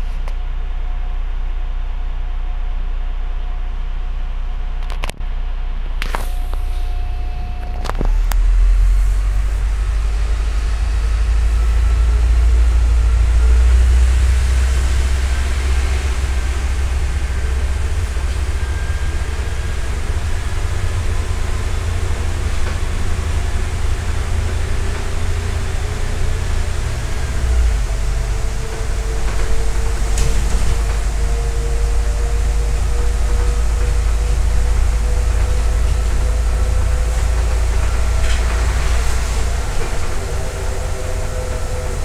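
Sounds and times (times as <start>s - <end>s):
bus engine rumble: 0.0s - 42.0s.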